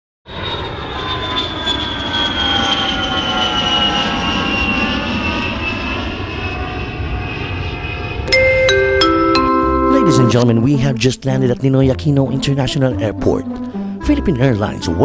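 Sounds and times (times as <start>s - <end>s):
airliner engines whining: 0.3s - 11.2s, 12.0s - 15.0s.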